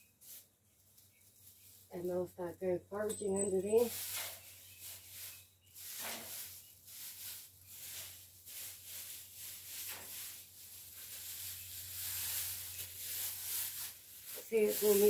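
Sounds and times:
dry straw rustling: 0:00.0 - 0:02.4, 0:03.6 - 0:15.0.

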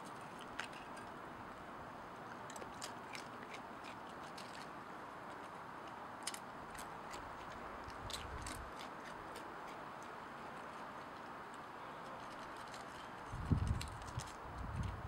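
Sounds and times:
crunching potato chips: 0:06.2 - 0:09.9.

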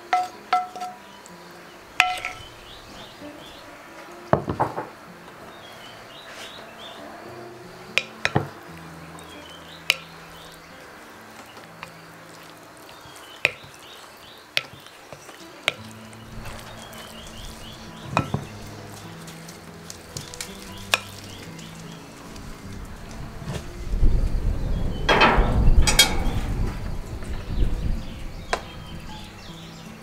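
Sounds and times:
spoon clinking against bowl: 0:02.0 - 0:02.5
spoon squelching wet filling: 0:11.4 - 0:22.2.

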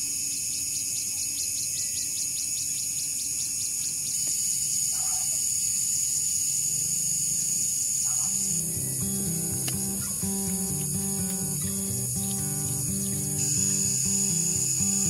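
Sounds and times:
insects chirring: 0:00.0 - 0:15.0
acoustic guitar music: 0:08.3 - 0:15.0
fast pulsing trill: 0:08.4 - 0:15.0.

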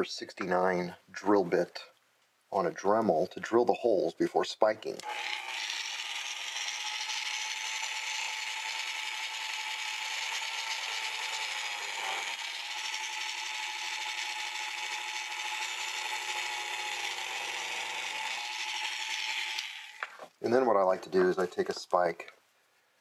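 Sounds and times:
rotary tool drilling into wood: 0:04.9 - 0:20.4.

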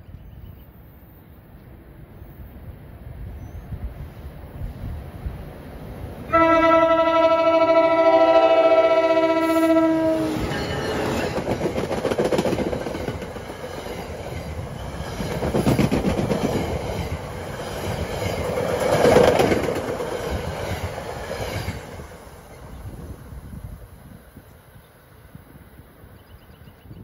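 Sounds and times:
passing train rumble: 0:00.4 - 0:26.9
train wheels clacking: 0:10.2 - 0:22.0.

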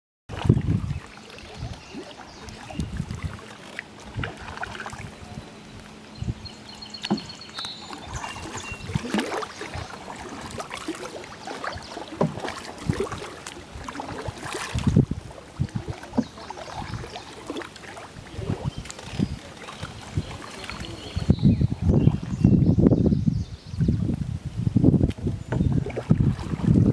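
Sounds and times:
water splashes and drips: 0:00.3 - 0:05.2, 0:07.0 - 0:21.3, 0:25.0 - 0:26.9
paddle dipping through water: 0:00.3 - 0:26.9
paddle knocking against canoe: 0:07.0 - 0:21.0, 0:25.1 - 0:26.9.

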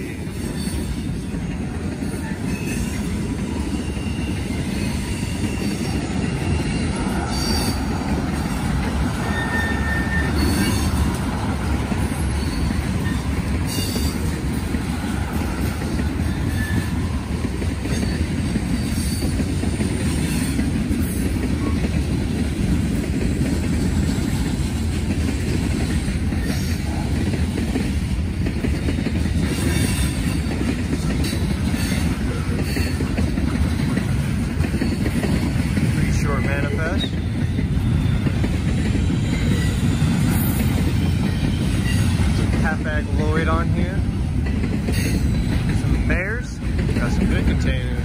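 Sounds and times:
steel wheels rumbling on rail: 0:00.0 - 0:48.0
high wheel squeal: 0:00.2 - 0:01.3, 0:02.0 - 0:11.2, 0:11.9 - 0:14.4, 0:15.0 - 0:19.5, 0:36.8 - 0:42.3.

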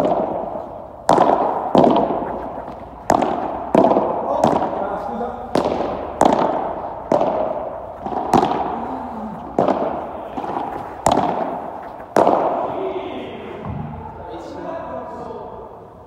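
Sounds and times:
padel ball pops echoing: 0:00.0 - 0:12.8.

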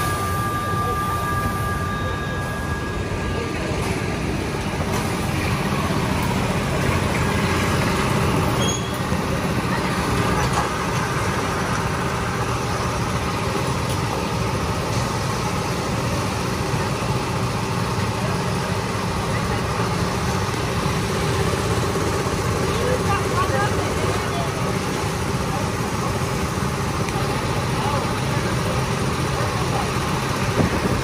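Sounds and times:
go-kart engines rumbling: 0:00.0 - 0:31.0.

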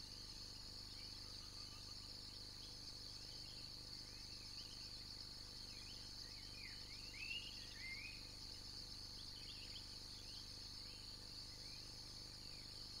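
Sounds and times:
insects chorus: 0:00.0 - 0:13.0
bird chirps: 0:05.8 - 0:08.2.

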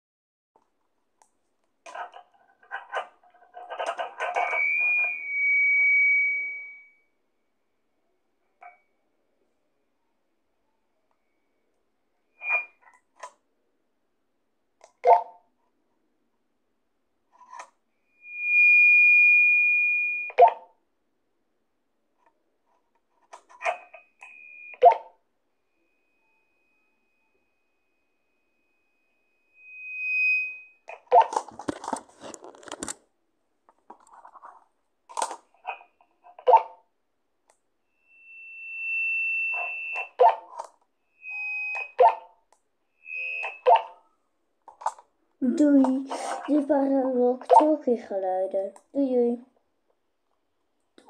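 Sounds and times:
walkie-talkie crackle: 0:01.9 - 0:05.2
walkie-talkie beep: 0:03.8 - 0:06.9, 0:12.4 - 0:12.9, 0:38.3 - 0:40.6, 0:41.2 - 0:42.3, 0:43.0 - 0:44.0
steady high beep: 0:04.2 - 0:07.0, 0:12.4 - 0:12.8, 0:18.1 - 0:20.6, 0:25.7 - 0:31.3, 0:37.9 - 0:40.4, 0:41.1 - 0:42.2, 0:42.9 - 0:44.0.

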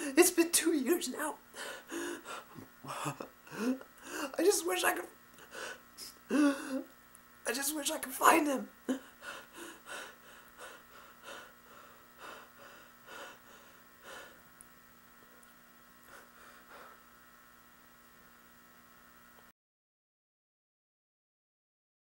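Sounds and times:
steady electrical hum: 0:00.0 - 0:19.5
man sobbing and sniffling: 0:01.6 - 0:04.4, 0:05.4 - 0:06.9, 0:08.9 - 0:14.4.

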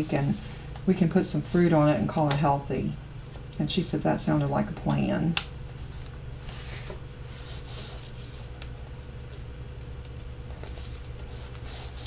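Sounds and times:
steady low hum: 0:00.0 - 0:12.0
paper rustling and sliding: 0:05.8 - 0:08.6, 0:10.6 - 0:12.0.

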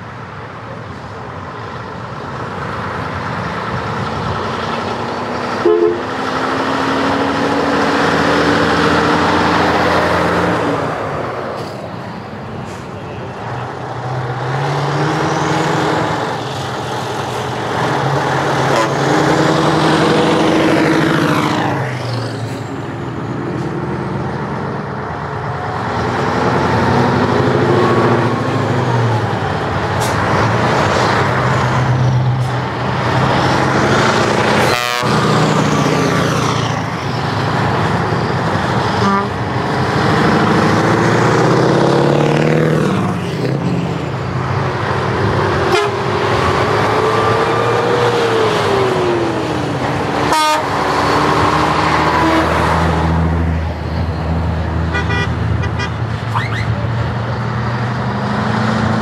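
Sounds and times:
diesel trucks driving past: 0:00.0 - 0:59.0
horn tooting: 0:05.6 - 0:06.2, 0:18.7 - 0:19.1, 0:34.6 - 0:35.3, 0:38.9 - 0:39.4, 0:45.7 - 0:46.1, 0:50.2 - 0:50.8, 0:54.9 - 0:56.6.

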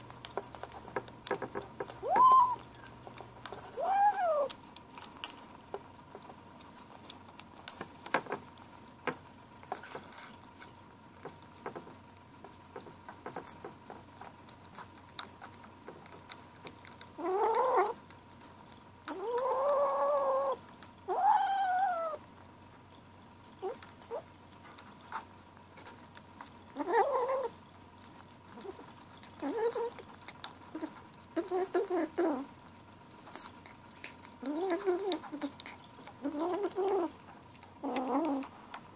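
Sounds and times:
kitten licking and chewing: 0:00.0 - 0:38.9
kitten growling and yowling: 0:02.0 - 0:02.7, 0:03.6 - 0:04.6, 0:17.2 - 0:18.0, 0:19.1 - 0:22.3, 0:26.8 - 0:27.6, 0:34.4 - 0:37.2, 0:37.8 - 0:38.5.

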